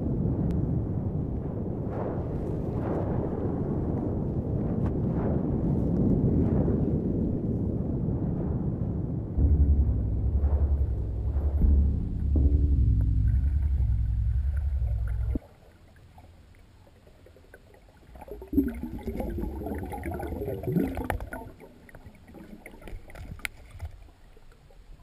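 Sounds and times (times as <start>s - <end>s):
music with deep low notes: 9.4s - 15.5s
underwater gurgling: 9.4s - 25.0s.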